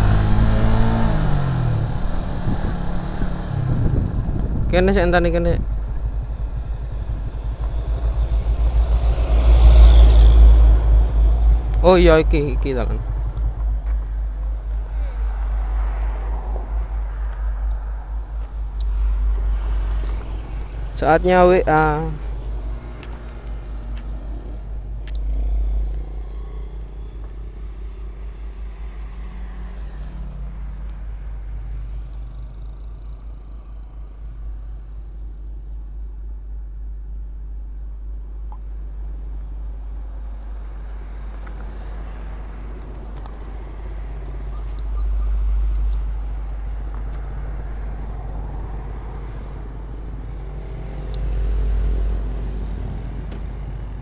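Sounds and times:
motorcycle engine idling: 0.0s - 27.6s, 31.1s - 36.2s
motorcycle passing by: 0.0s - 35.1s, 40.2s - 54.0s
passing traffic: 0.0s - 54.0s.

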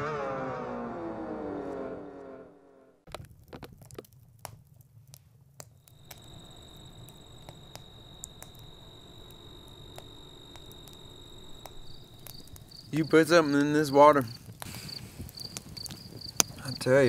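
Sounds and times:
campfire crackling and popping: 3.1s - 17.0s
low background rumble: 5.8s - 13.8s
cricket trill: 5.8s - 17.0s.

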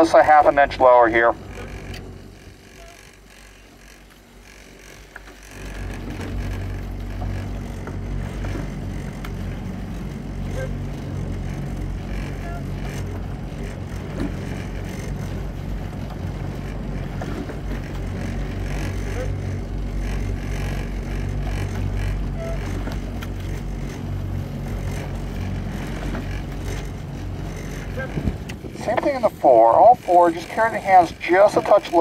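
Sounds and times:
outboard motor running: 0.0s - 32.0s.

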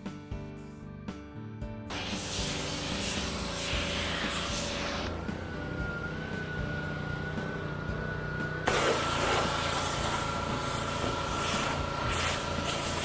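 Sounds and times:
high-pressure water spraying: 1.9s - 5.2s, 8.6s - 13.0s
pressure washer engine whine: 1.9s - 13.0s.

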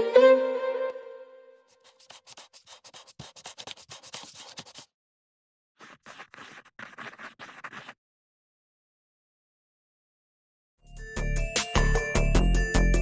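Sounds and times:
rapid scratching and clicking: 1.8s - 4.9s, 5.8s - 8.0s.

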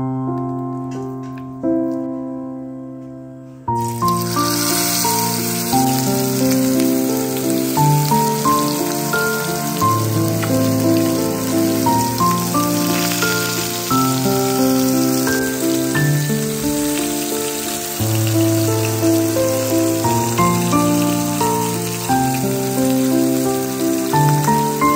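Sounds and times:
instrumental background music: 0.3s - 24.9s
fish sizzling in a pan: 3.8s - 24.9s.

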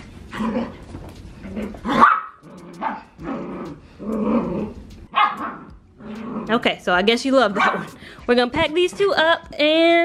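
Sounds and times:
puppy barking and growling: 0.2s - 0.8s, 1.4s - 6.6s, 7.5s - 8.0s.

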